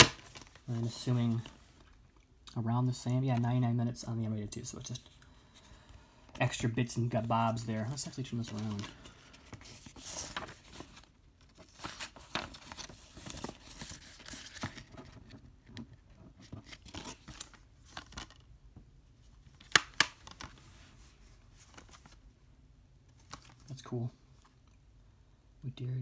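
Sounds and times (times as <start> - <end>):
plastic case rustling and scraping: 7.8 - 18.4.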